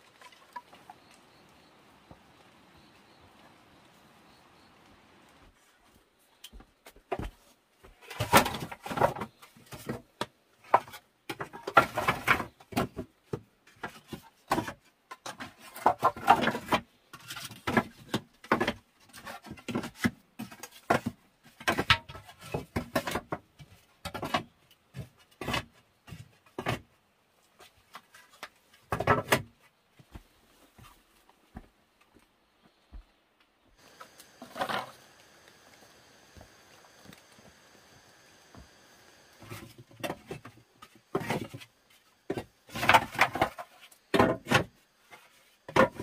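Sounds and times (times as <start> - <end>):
bamboo poles knocking together: 42.3 - 46.0.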